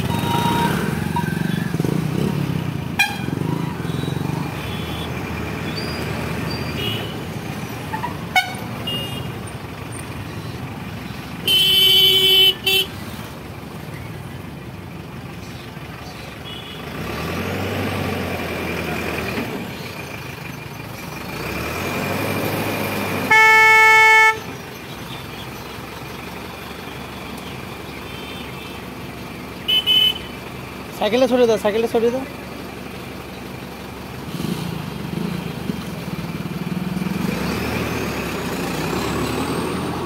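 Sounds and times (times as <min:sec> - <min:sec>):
traffic noise: 0:00.0 - 0:40.0
vehicle horn blasts: 0:03.0 - 0:05.1, 0:06.8 - 0:07.2, 0:07.9 - 0:09.4, 0:11.4 - 0:12.9, 0:23.3 - 0:24.5, 0:29.7 - 0:30.4.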